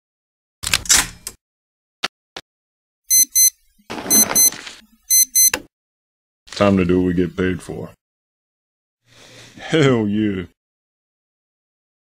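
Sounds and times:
wristwatch alarm double beeps: 3.1 - 4.5, 5.1 - 5.6.

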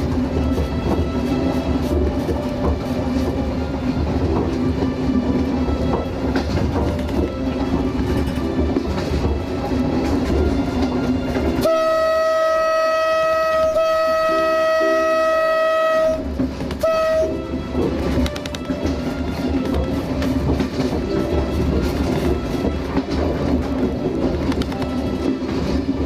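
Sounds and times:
train rumbling on rails: 0.0 - 26.0
train horn blast: 11.5 - 19.6.

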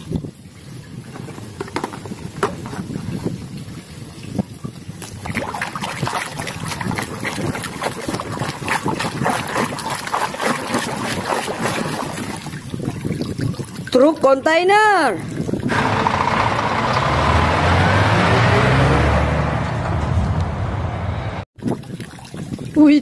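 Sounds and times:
water sloshing in plastic tub: 1.0 - 14.4.

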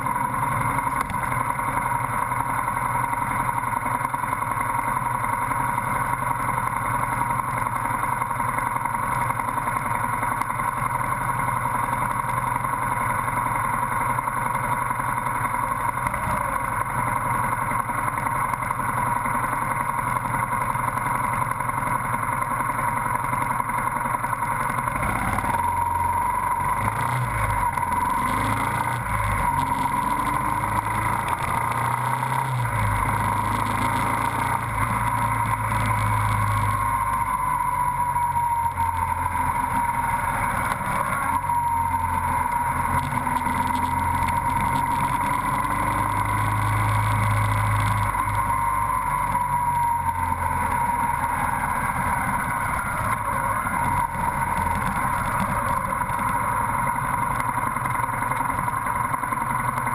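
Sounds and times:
motorcycle engine rumbling: 0.0 - 59.9
steady high whine: 0.0 - 59.9.

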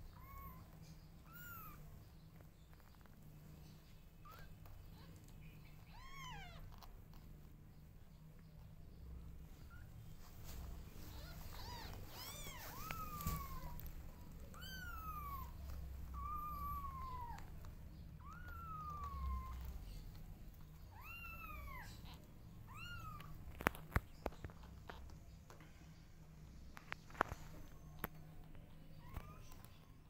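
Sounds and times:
kittens mewing: 0.0 - 1.9, 4.2 - 7.2, 11.0 - 23.6.

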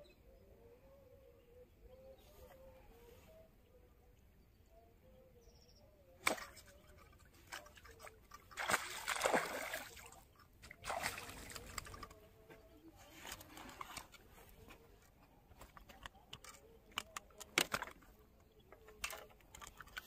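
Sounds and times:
sharp smack on water: 6.2 - 6.7
fish thrashing and splashing: 6.2 - 12.2.

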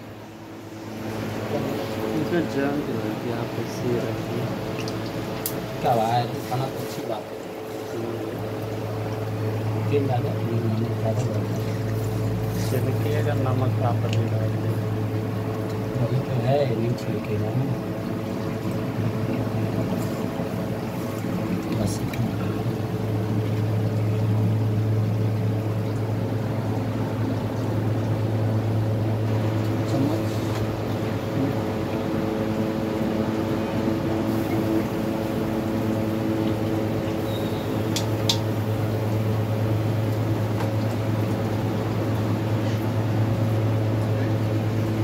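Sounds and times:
cooktop electrical hum: 0.0 - 45.0
fan-like hiss: 0.0 - 45.0.

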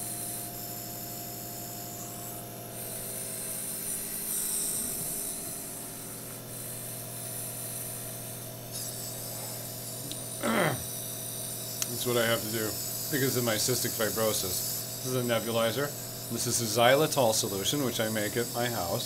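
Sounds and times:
air compressor humming: 0.0 - 19.0
nebulizer mist hissing: 0.0 - 19.0.

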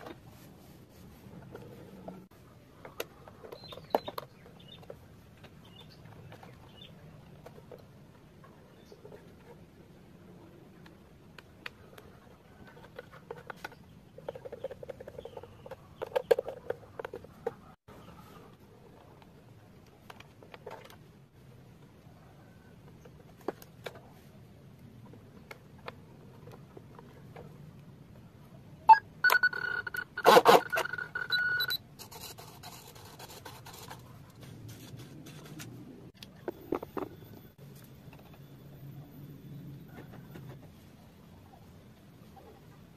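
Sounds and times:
electronic beep: 28.9 - 31.8.

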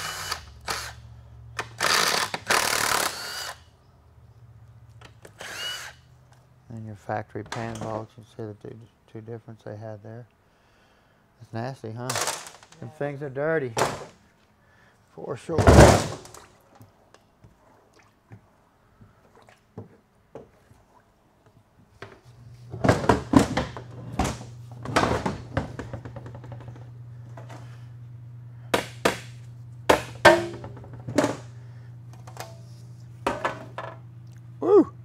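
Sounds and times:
steady low hum: 0.0 - 35.0
metal clunks and knocks: 29.9 - 31.4.

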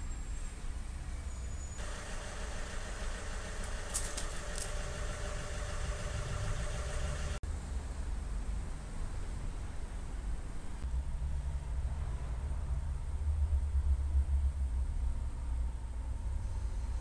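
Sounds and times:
diesel engine idling: 1.8 - 7.4.

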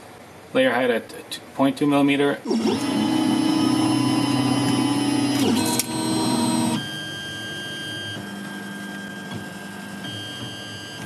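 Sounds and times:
stepper motors whining: 2.4 - 9.2.

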